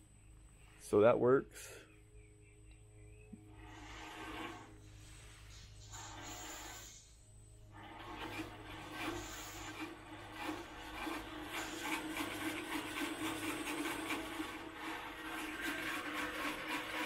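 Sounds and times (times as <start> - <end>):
bandsaw motor humming: 3.4 - 4.8, 5.9 - 17.0
bandsaw wheels rubbing and scraping: 3.5 - 17.0.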